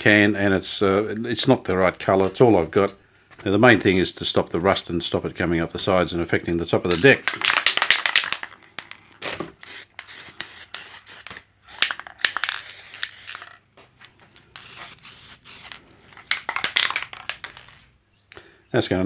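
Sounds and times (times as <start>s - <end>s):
spray paint can hissing: 9.6s - 13.6s, 14.6s - 17.7s.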